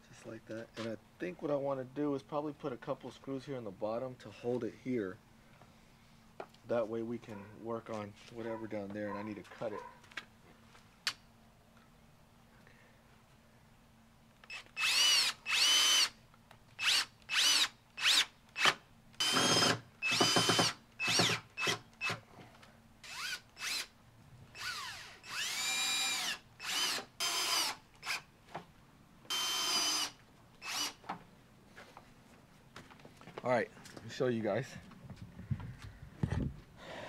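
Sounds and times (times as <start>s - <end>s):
cordless drill driving screws: 14.4s - 16.2s, 16.8s - 22.2s, 23.0s - 23.9s, 24.5s - 28.3s, 29.3s - 31.0s.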